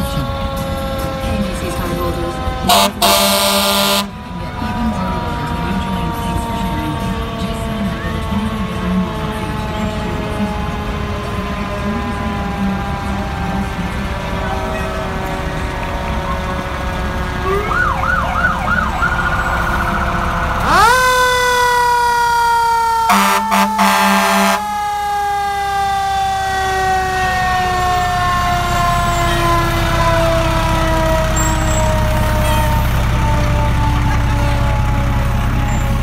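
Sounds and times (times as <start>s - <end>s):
fire truck siren wailing: 0.0s - 36.0s
siren chirps: 0.0s - 36.0s
truck engine rumbling: 0.0s - 36.0s
air horn blasts: 2.6s - 4.2s, 23.1s - 24.7s.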